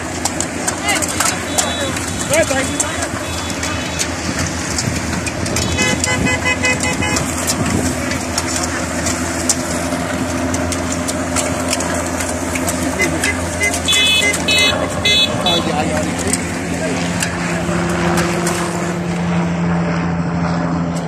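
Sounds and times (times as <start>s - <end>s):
bike clicks: 0.0s - 16.6s
rush of bicycle tyres and wind: 0.0s - 19.2s
vehicle horn: 1.3s - 4.1s, 5.5s - 7.6s, 12.9s - 15.8s.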